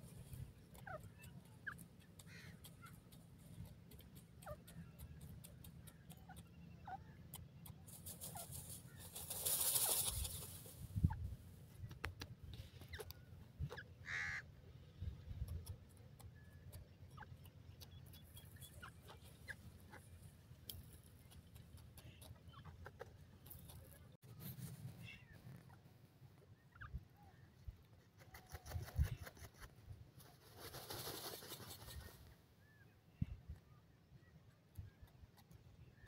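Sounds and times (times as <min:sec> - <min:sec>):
bird scratching in sand: 0:07.8 - 0:10.8, 0:28.2 - 0:32.1.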